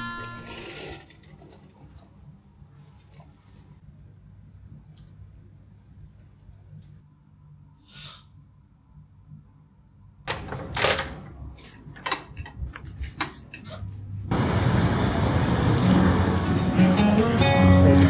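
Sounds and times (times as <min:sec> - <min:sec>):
loud steady noise: 0:14.3 - 0:18.0.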